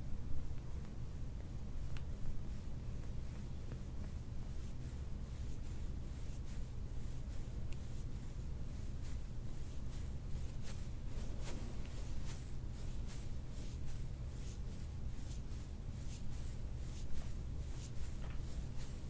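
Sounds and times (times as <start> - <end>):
steady low hum: 0.0 - 19.0
suction cup rubbing on skin: 4.6 - 19.0.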